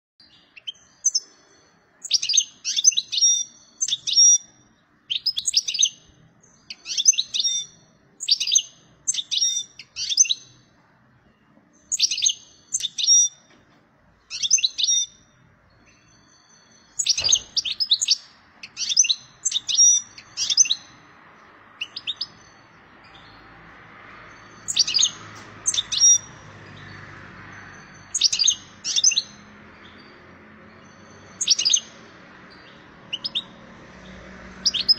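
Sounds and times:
goldfinch twittering song: 0:00.2 - 0:34.9
sharp knock: 0:17.1 - 0:17.7.

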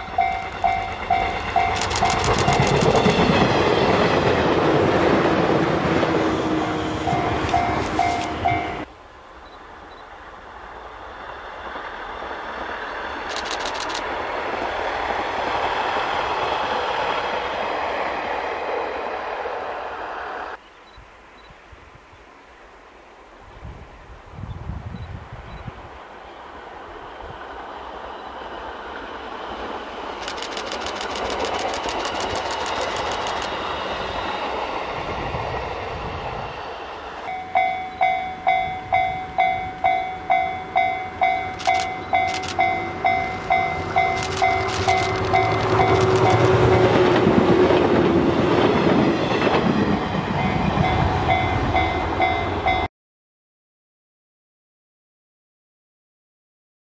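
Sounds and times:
level-crossing bell ringing: 0:00.0 - 0:02.7, 0:07.1 - 0:08.9, 0:37.3 - 0:46.4
electric train rumble and rail noise: 0:00.0 - 0:52.9.

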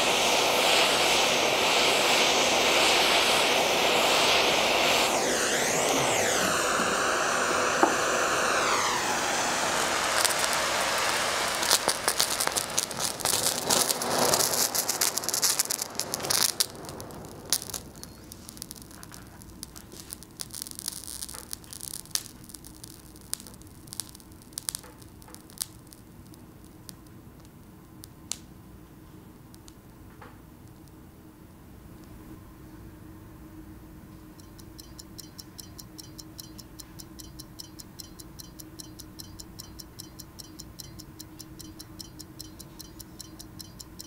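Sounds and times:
burning magnesium hissing: 0:00.0 - 0:28.6
crackling and popping: 0:05.2 - 0:31.1.

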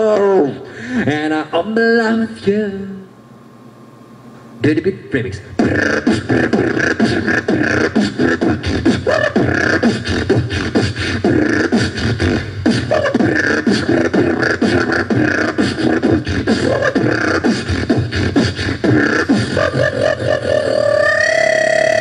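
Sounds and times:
beatboxed wobble bass glides: 0:05.5 - 0:22.0
beatboxing clicks and snares: 0:05.5 - 0:22.0.

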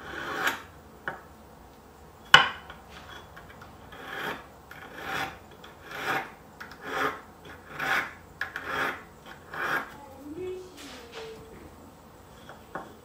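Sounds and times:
hand file rasping metal: 0:00.0 - 0:00.7, 0:03.1 - 0:10.0.

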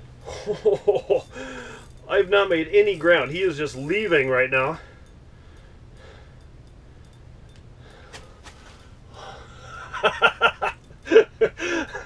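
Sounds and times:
faint low hum: 0:00.0 - 0:12.0
man laughing and gasping: 0:00.2 - 0:01.9, 0:09.2 - 0:12.0.

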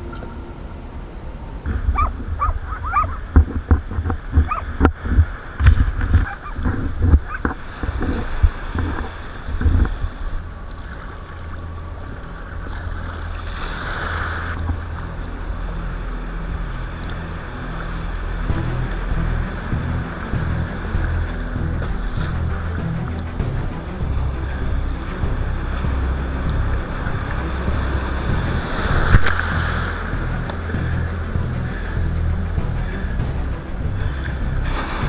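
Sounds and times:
water splashing against kayak: 0:01.6 - 0:35.0
thumps on kayak hull: 0:03.0 - 0:09.9.

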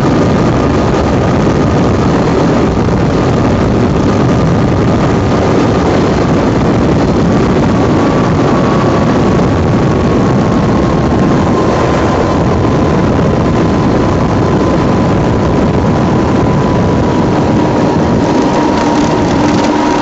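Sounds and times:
light aircraft engine: 0:00.0 - 0:20.0
wind rush over microphone: 0:00.0 - 0:20.0.

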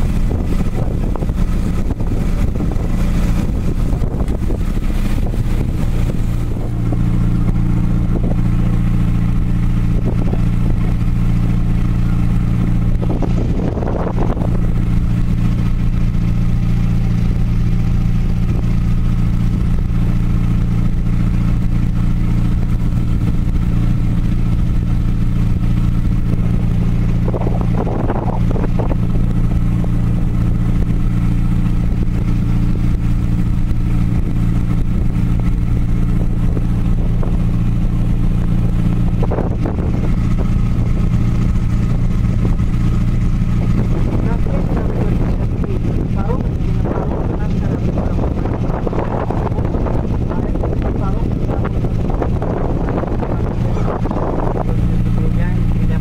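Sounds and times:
ferry engine droning: 0:00.0 - 0:56.0.

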